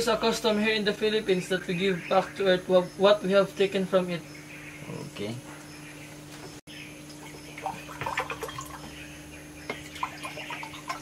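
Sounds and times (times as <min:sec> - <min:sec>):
liquid pouring into a cup: 0:07.1 - 0:08.9
pitcher and cups tapping: 0:07.6 - 0:08.9.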